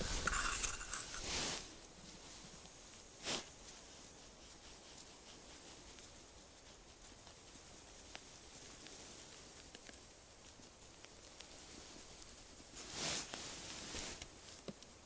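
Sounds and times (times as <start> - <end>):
faint outdoor hiss: 0.0 - 15.0.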